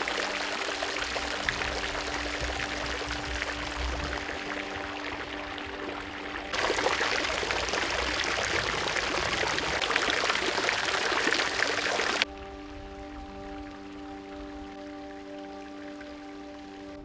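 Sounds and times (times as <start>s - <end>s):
fountain water splashing: 0.0s - 16.9s
soft background music: 0.0s - 17.0s.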